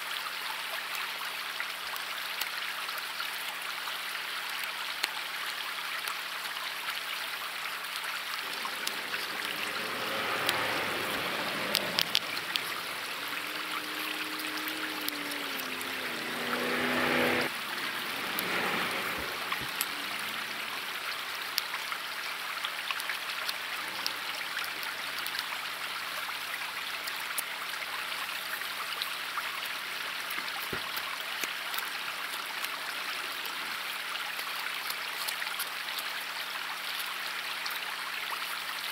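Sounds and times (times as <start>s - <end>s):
fast-flowing river rushing: 8.0s - 27.2s
pitched drone: 8.2s - 21.6s.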